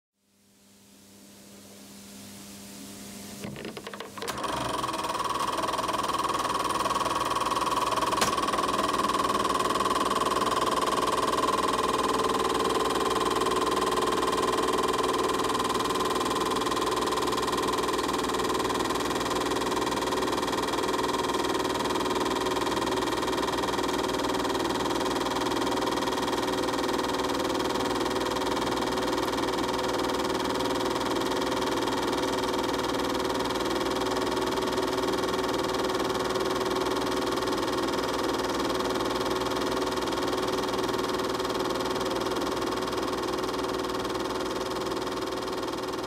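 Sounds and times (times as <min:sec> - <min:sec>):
film projector hum: 0:02.5 - 0:46.0
film projector clatter: 0:03.4 - 0:46.0
projector mechanism clicks: 0:08.0 - 0:08.6.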